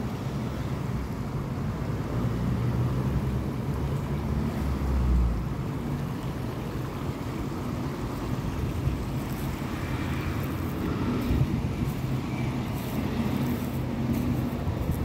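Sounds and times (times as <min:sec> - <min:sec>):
wind on microphone rumble: 0:08.2 - 0:15.0.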